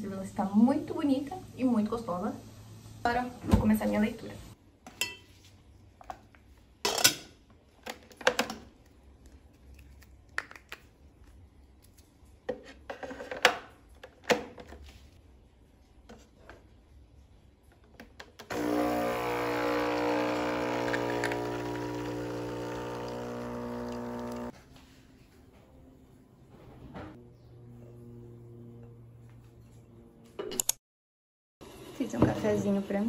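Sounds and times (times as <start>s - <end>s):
coffee machine pump humming: 18.5s - 24.6s.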